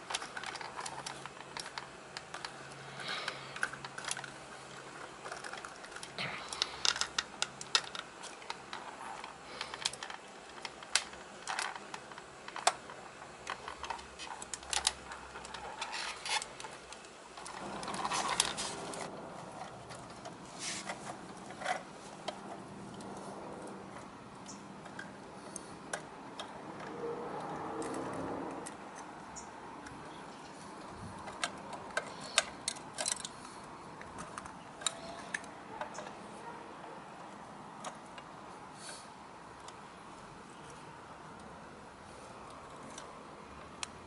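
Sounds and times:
toy trucks clicking: 0.0 - 44.0
toy scraping: 13.5 - 23.4.

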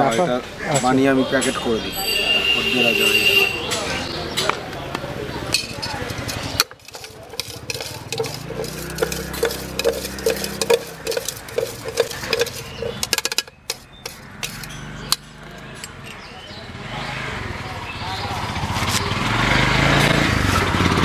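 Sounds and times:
metal spoon clinking in steel tumbler: 5.5 - 14.8.

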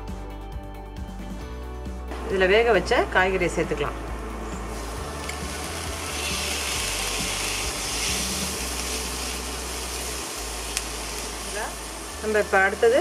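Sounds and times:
vegetables sizzling in a frying pan: 4.6 - 13.0.

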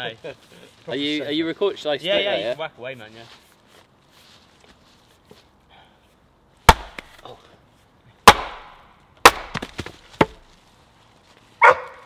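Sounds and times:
axe striking wood: 6.7 - 7.3, 8.2 - 10.4.

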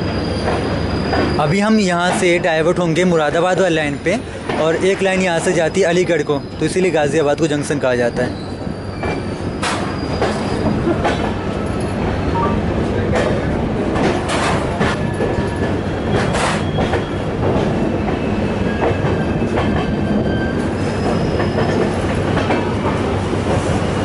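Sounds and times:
train wheel rumble: 0.0 - 24.0
wheels clacking over rail joints: 13.0 - 23.8
faint thin wheel squeals: 20.2 - 21.8.

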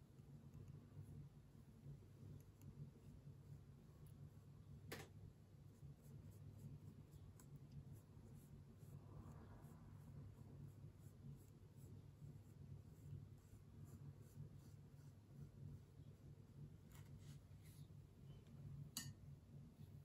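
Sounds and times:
low steady hum: 0.0 - 20.0
brush strokes on paper: 5.7 - 18.4.

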